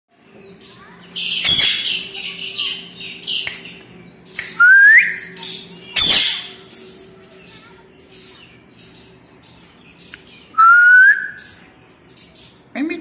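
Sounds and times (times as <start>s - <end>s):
parakeet screeching: 1.2s - 2.8s, 5.2s - 6.6s.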